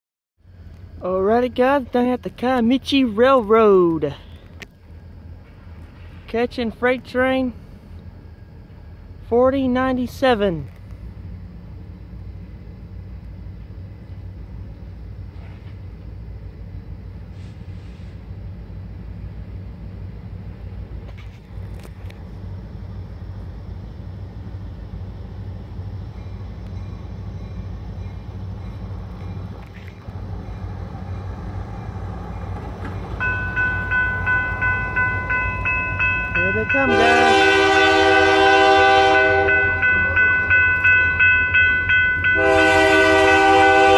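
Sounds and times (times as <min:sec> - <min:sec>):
diesel locomotive rumble: 0:00.4 - 0:43.9
crossing warning bell ringing: 0:30.3 - 0:43.9.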